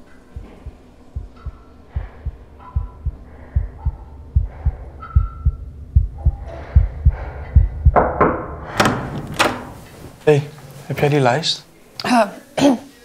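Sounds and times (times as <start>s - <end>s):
heartbeat thuds: 0.3s - 9.2s.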